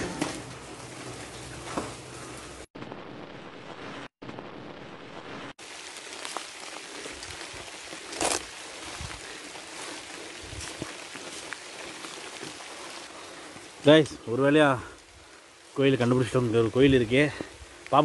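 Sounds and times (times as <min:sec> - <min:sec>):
heavy rain falling: 0:05.2 - 0:17.8.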